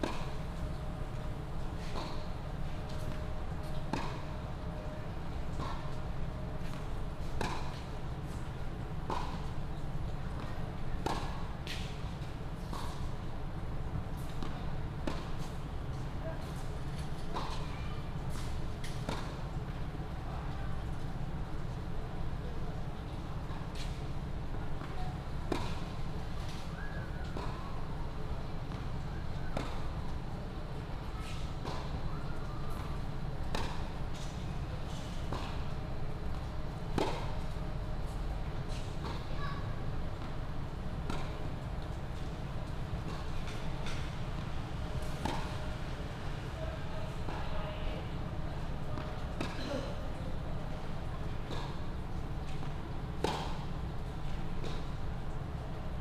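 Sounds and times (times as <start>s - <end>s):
tennis ball bouncing: 0.0s - 0.2s, 3.9s - 4.2s, 7.4s - 7.8s, 29.6s - 29.8s, 33.5s - 33.8s, 37.0s - 37.3s, 41.1s - 41.3s, 45.2s - 45.6s, 53.2s - 53.6s
tennis ball struck by racket: 3.9s - 4.2s, 33.5s - 33.8s, 45.2s - 45.5s.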